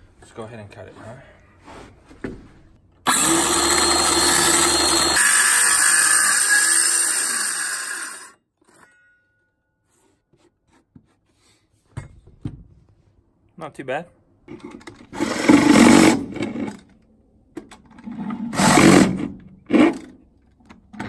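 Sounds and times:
circular saw cutting wood: 0:03.1 - 0:08.4.

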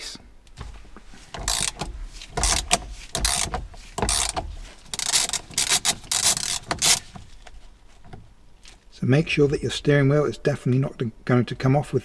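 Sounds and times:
ratchet wrench clicking: 0:01.4 - 0:07.1.

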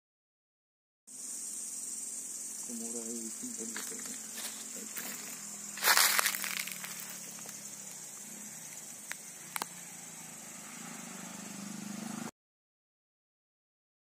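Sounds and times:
high-pitched insect chorus: 0:01.1 - 0:12.3.

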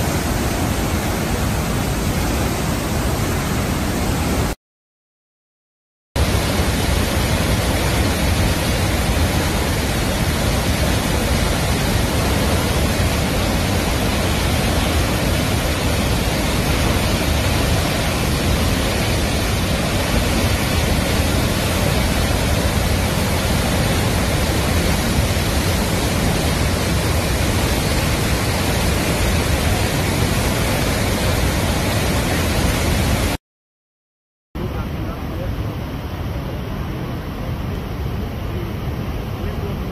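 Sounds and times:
waterfall rushing: 0:00.0 - 0:04.6, 0:06.2 - 0:33.4.

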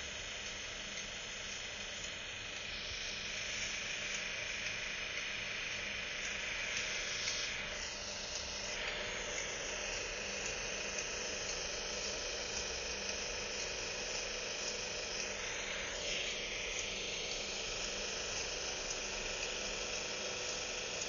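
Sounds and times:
faint hum tones: 0:00.0 - 0:21.0
steady hiss: 0:00.0 - 0:21.0.

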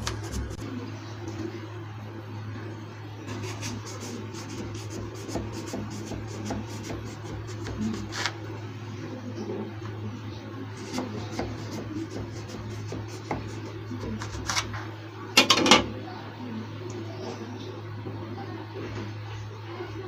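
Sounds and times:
steady low hum: 0:00.0 - 0:20.0
knife scraping and tapping: 0:03.4 - 0:08.4, 0:10.8 - 0:14.7
blade knocking on metal tray: 0:10.9 - 0:14.6.

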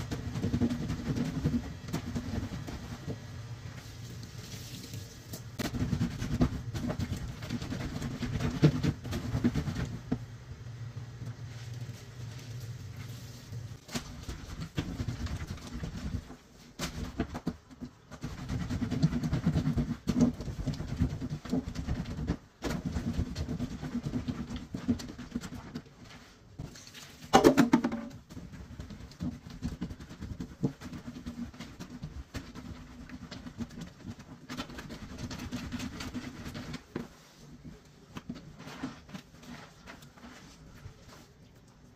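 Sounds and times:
laundry scrubbed on a washboard: 0:00.0 - 0:10.2, 0:11.4 - 0:41.5
dripping suds: 0:03.8 - 0:05.6.

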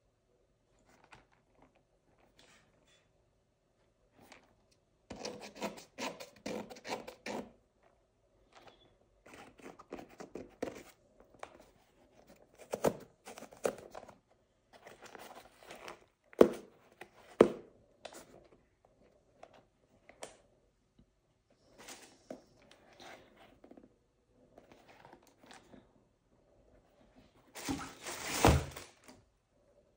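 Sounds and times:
boot handling scrapes and knocks: 0:27.6 - 0:28.8.

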